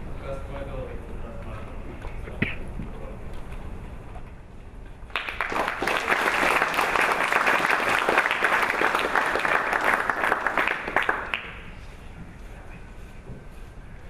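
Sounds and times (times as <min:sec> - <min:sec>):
audience applauding: 0:05.1 - 0:11.6.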